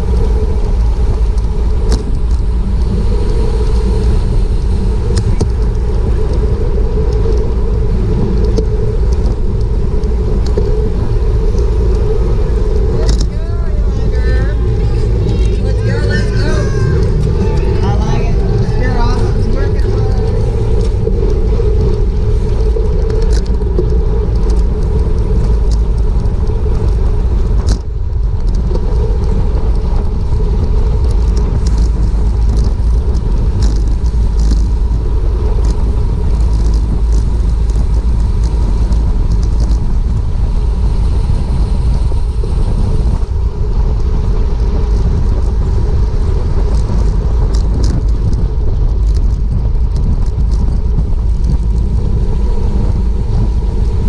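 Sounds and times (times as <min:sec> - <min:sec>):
road and tyre noise: 0:00.0 - 0:54.0
wind rushing over microphone: 0:00.0 - 0:54.0
faint ticks: 0:19.9 - 0:40.1.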